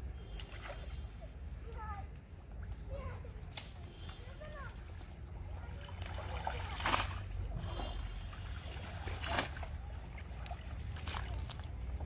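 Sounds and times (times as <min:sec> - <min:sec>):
water splashing and sloshing: 0:00.0 - 0:12.0
loud splashes: 0:05.9 - 0:10.0.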